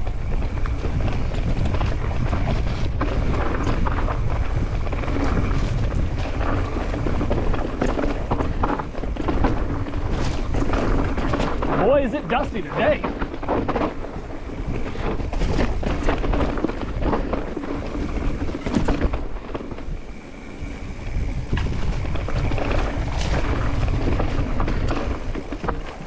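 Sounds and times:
bike rattling over bumps: 0:00.0 - 0:26.0
bike tyres crunching over dirt: 0:00.0 - 0:26.0
wind rumble on microphone: 0:00.0 - 0:26.0.

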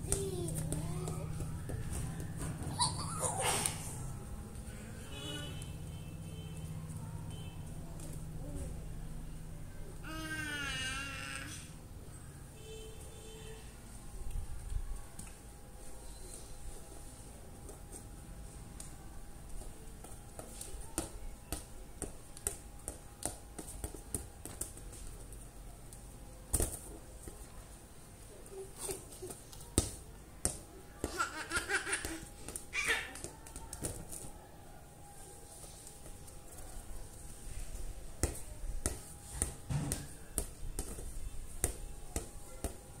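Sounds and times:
ball tapping on concrete: 0:00.1 - 0:02.3, 0:38.2 - 0:42.8.

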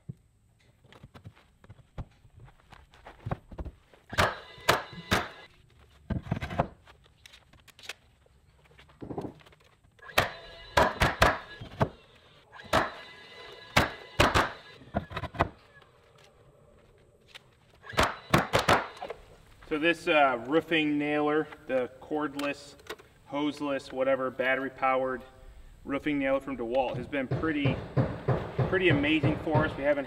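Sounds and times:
nail gun shots: 0:04.1 - 0:05.4, 0:10.0 - 0:12.0, 0:12.6 - 0:15.5, 0:17.8 - 0:19.2.

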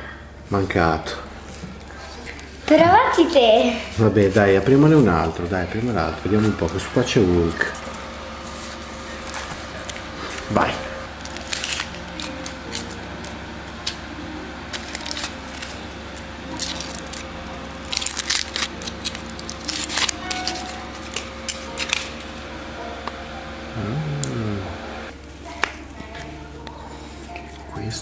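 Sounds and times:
foil wrapper crinkling: 0:04.0 - 0:22.6.

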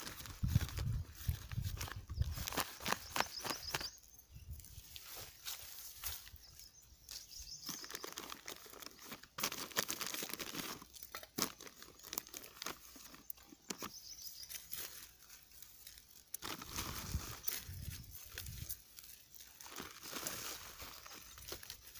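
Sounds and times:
soil scraping: 0:00.0 - 0:21.9
plastic bag crinkling: 0:07.3 - 0:21.9.

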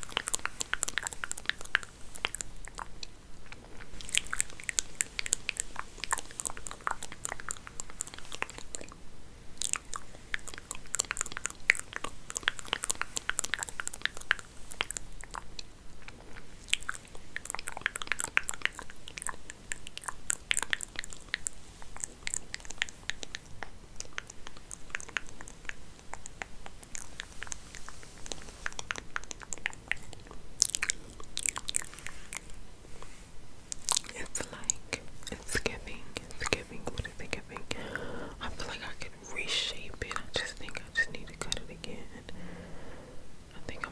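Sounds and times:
hair rustling crackly: 0:00.0 - 0:09.0, 0:09.6 - 0:37.8.

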